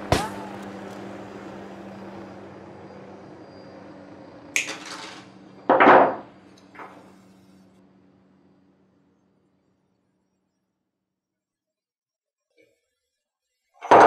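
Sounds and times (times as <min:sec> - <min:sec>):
low hum: 0:00.0 - 0:11.0
metal parts clattering on wood: 0:04.6 - 0:06.2.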